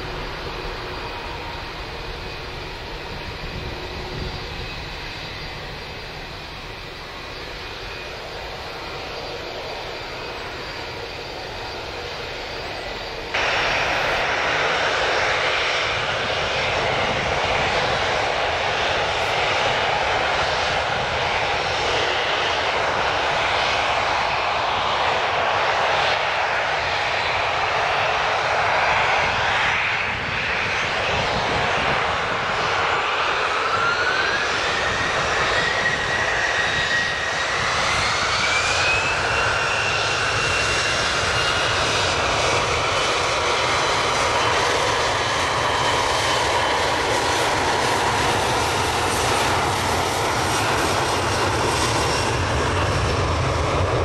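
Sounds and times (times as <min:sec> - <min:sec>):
distant jet engines rumbling: 0:00.0 - 0:54.0
loud jet engine rush: 0:00.0 - 0:54.0.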